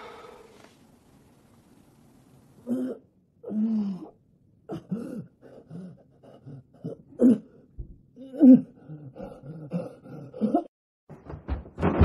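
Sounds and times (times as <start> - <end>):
person coughing and groaning: 4.7 - 7.6, 8.3 - 10.7.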